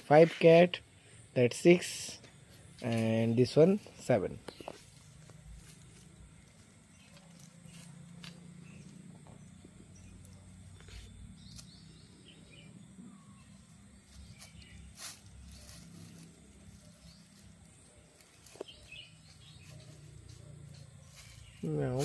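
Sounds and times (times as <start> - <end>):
faint bird chirps: 6.6 - 22.0.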